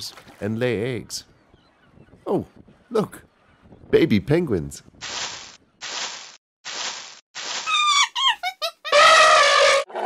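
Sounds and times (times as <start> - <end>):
squeaky falling chirps: 7.5 - 9.9.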